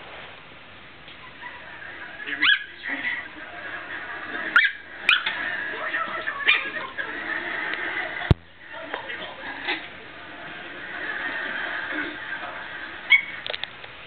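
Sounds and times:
puppy yipping: 1.2s - 3.2s, 4.5s - 5.4s, 13.1s - 13.4s.

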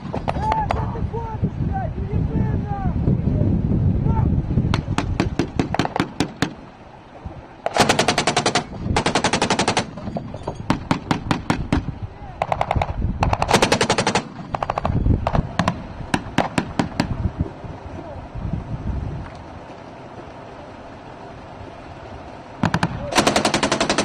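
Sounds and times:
automatic gunfire bursts: 7.7s - 10.0s, 10.7s - 17.1s, 22.6s - 24.0s.

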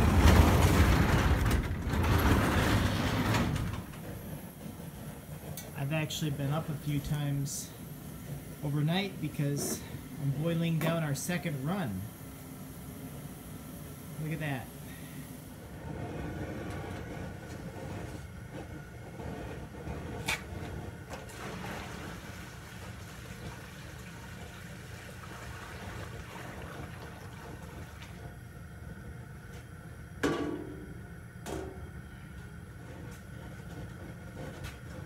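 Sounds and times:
sap boiling in a pan: 0.0s - 35.0s
liquid pouring and splashing: 21.2s - 28.2s.

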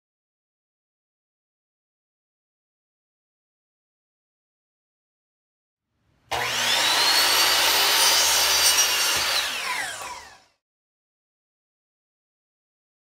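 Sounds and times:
miter saw cutting wood: 6.3s - 10.6s.

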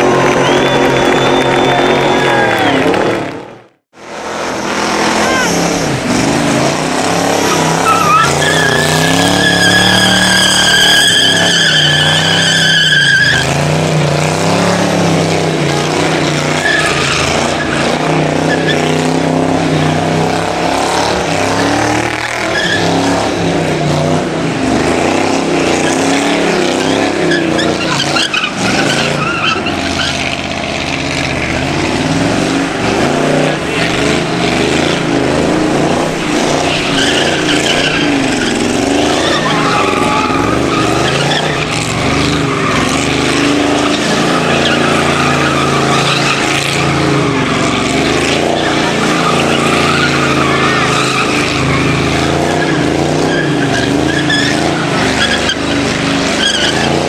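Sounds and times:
car engine revving hard: 0.0s - 57.0s
tyre squeal: 0.2s - 2.6s, 7.2s - 13.6s, 16.3s - 18.9s, 25.8s - 30.4s, 36.2s - 57.0s
spinning tyres hissing: 4.2s - 20.7s, 21.9s - 57.0s.

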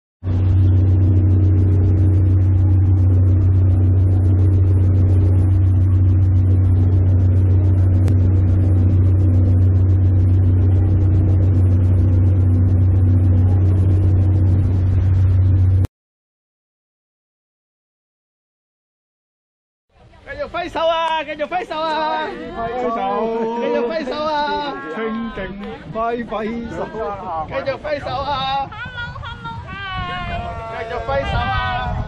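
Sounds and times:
engine running steadily: 0.2s - 15.9s.

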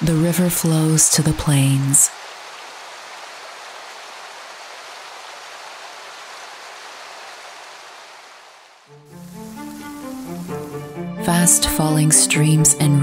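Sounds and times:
river water rushing: 1.7s - 11.6s.

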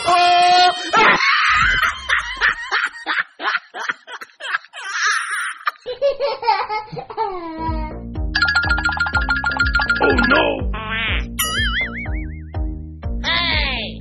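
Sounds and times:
high-pitched laughter: 0.0s - 7.3s.

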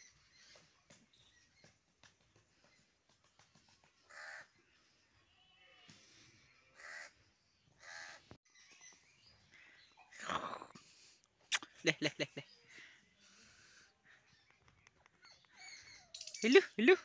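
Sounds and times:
crow cawing: 6.8s - 7.1s, 7.8s - 8.2s.

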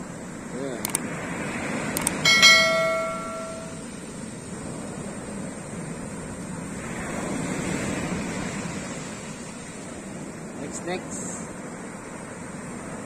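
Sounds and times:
ocean surf breaking: 0.0s - 13.0s
bell-like notification chime: 2.3s - 3.8s.

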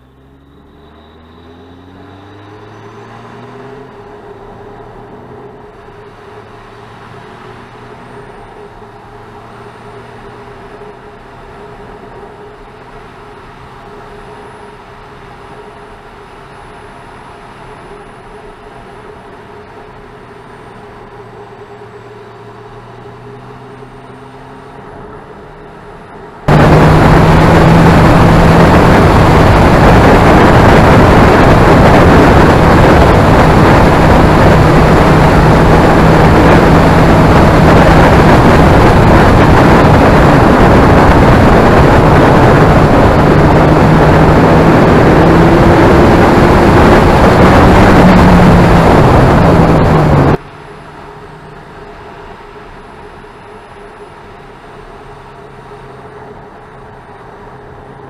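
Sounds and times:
motorcycle engine drone: 0.0s - 58.0s
wind rush: 26.4s - 50.4s.

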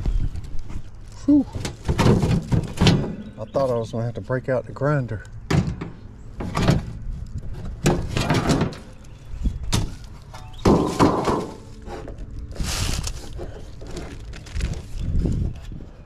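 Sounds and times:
hollow metal knocks: 5.5s - 6.9s, 9.7s - 11.6s.

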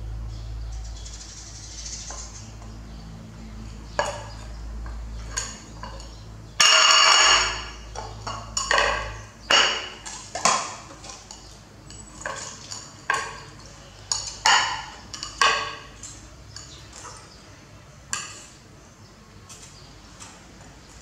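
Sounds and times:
plate clattering on tiled floor: 3.9s - 17.4s.

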